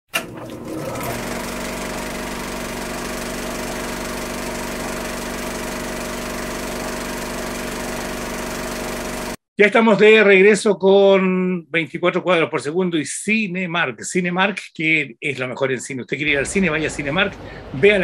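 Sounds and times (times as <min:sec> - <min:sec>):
film projector whirring: 0:00.1 - 0:09.4.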